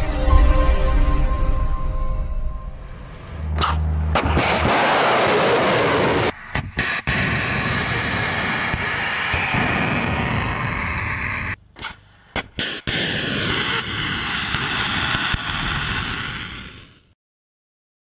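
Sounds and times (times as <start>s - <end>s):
rocket boosters roaring: 3.1s - 11.6s.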